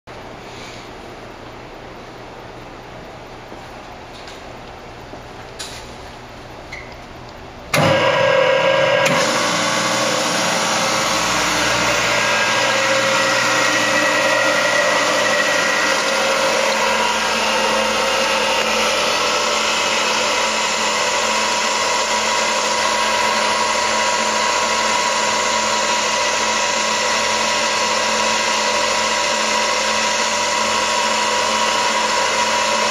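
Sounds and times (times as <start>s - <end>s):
mixer whirring whine: 7.4s - 32.9s.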